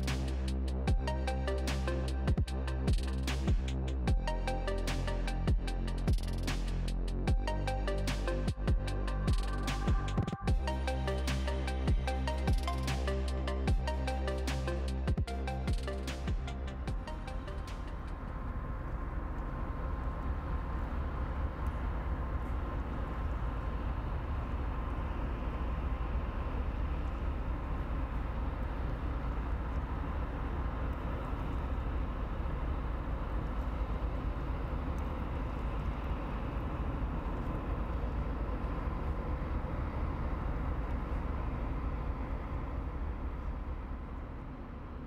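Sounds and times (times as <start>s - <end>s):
boat diesel engine droning: 0.0s - 45.0s.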